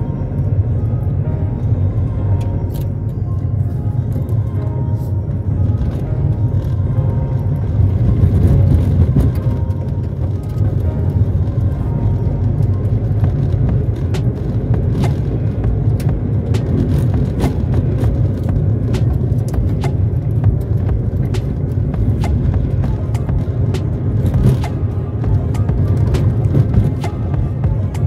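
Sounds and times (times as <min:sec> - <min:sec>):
vehicle engine and tyres rumbling: 0:00.0 - 0:28.0
sharp clicks and knocks: 0:13.2 - 0:24.9.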